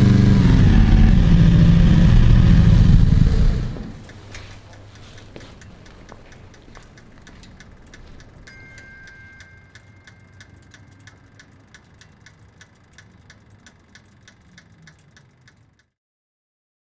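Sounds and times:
steady low hum: 0.0 - 15.9
rapid mechanical ticking: 0.0 - 16.0
two-note chime: 8.4 - 11.1.

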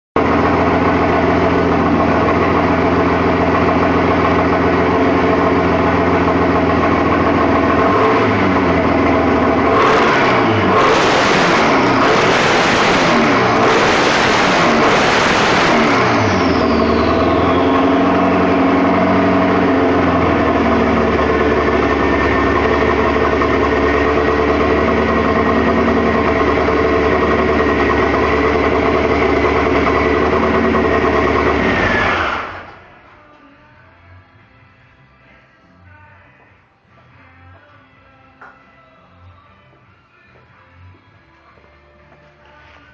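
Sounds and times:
engine idling and revving: 0.2 - 33.0
high whine: 0.2 - 33.4.

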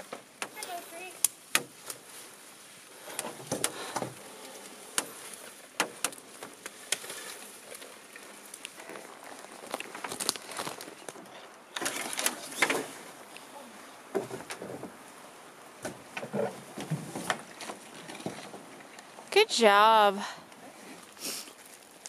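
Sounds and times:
twigs snapping underfoot: 3.1 - 12.7
footsteps through undergrowth: 4.1 - 11.3.

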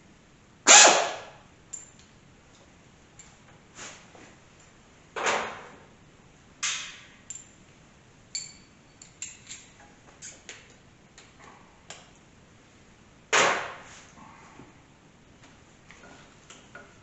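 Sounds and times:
tools and bolts clinking: 1.7 - 2.1, 7.2 - 7.6, 8.3 - 9.9.

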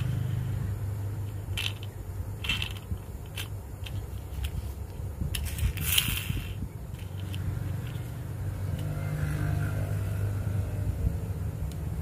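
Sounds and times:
steady low hum: 0.0 - 12.0
plastic toy clicks and scrapes: 1.5 - 8.9.

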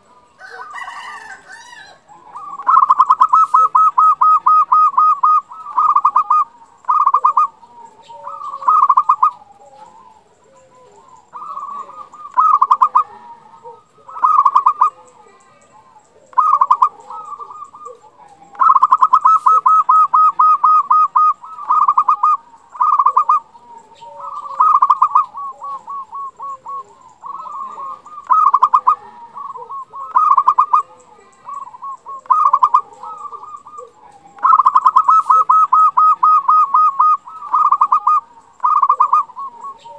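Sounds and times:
dove cooing: 0.0 - 39.9.

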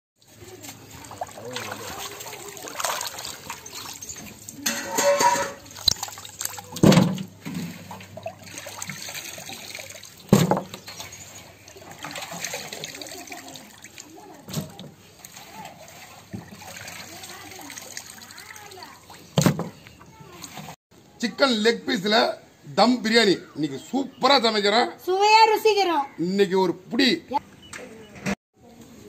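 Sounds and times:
water dripping into a basin: 0.2 - 4.8, 5.6 - 19.5
splashing in a basin of water: 0.2 - 20.8
loud splashes: 0.9 - 4.7, 5.6 - 10.6, 11.8 - 19.2.

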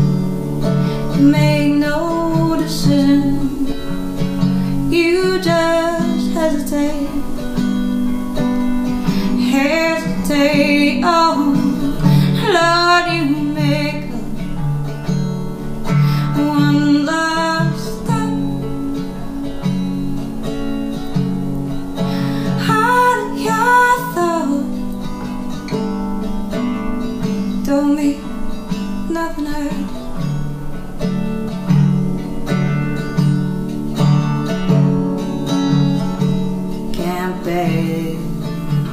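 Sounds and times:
strummed resonator guitar: 0.0 - 38.9
woman singing: 0.6 - 20.1, 22.0 - 25.7, 27.2 - 30.4, 36.3 - 38.9.

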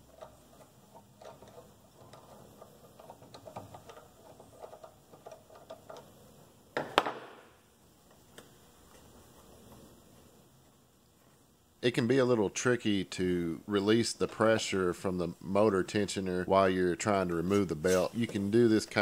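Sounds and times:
small metal ticks and rattles: 0.0 - 6.2.

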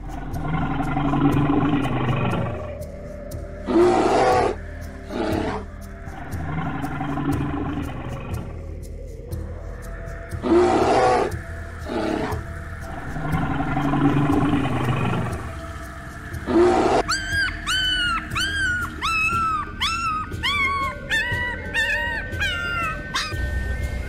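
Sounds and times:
bear growling and roaring: 0.0 - 2.9, 3.6 - 9.3, 10.3 - 15.6, 16.4 - 23.9
high-pitched whimpering cries: 17.0 - 23.5.

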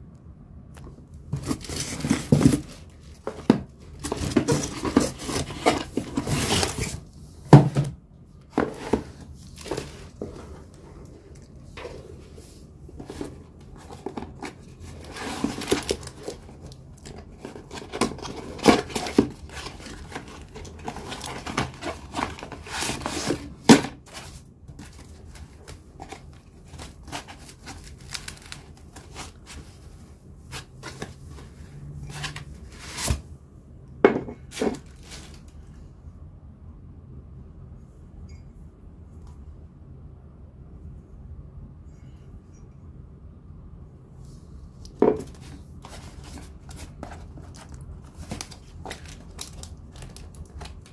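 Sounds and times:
paper crinkling and tearing: 13.0 - 29.6, 45.8 - 50.9.

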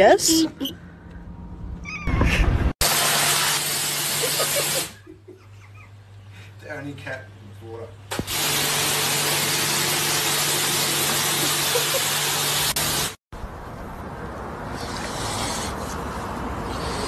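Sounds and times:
outdoor noise: 0.0 - 17.0
hose water spraying on glass: 2.8 - 5.0, 8.1 - 13.2.

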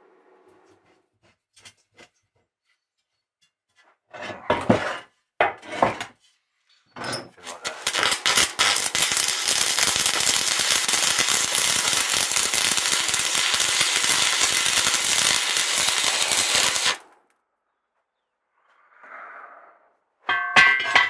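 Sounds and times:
welding arc crackling: 7.4 - 17.1.

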